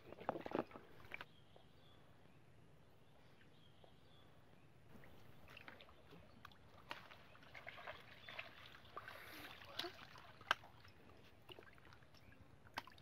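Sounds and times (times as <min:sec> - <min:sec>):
small splashes and clicks: 0:00.0 - 0:01.3, 0:05.4 - 0:13.0
water sloshing: 0:04.9 - 0:13.0.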